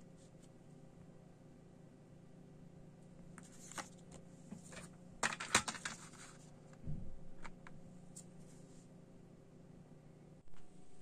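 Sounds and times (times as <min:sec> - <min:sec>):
paper booklet rustling: 0:03.4 - 0:06.5.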